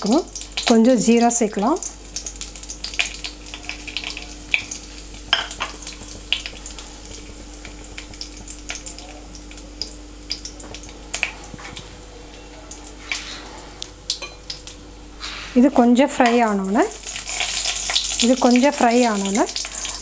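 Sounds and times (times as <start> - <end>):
oil crackling and popping: 0.0 - 0.8, 1.6 - 11.9, 16.4 - 20.0
spices sizzling in hot oil: 0.0 - 20.0.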